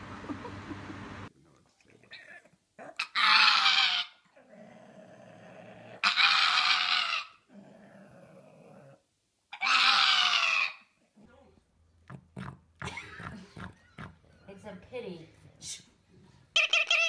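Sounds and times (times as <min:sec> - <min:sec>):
dog howling: 0:09.6 - 0:10.8.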